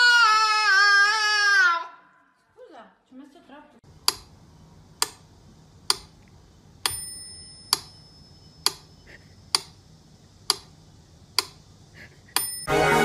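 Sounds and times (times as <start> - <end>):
sharp ringing ticks: 6.8 - 9.8, 12.3 - 12.7
bell-like ding: 6.9 - 8.5, 12.4 - 12.8.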